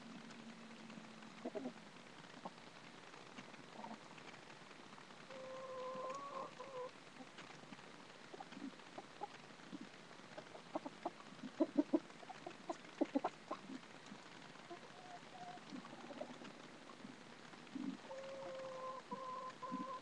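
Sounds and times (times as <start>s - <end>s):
chickens clucking: 1.4s - 1.8s, 5.3s - 6.9s, 10.4s - 16.6s, 17.7s - 20.0s.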